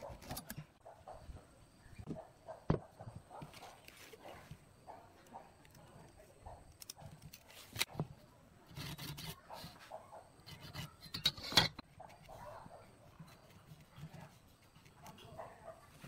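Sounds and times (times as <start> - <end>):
tools knocking on wooden bench: 2.1 - 2.9
pencil scratching on wood: 8.7 - 16.0.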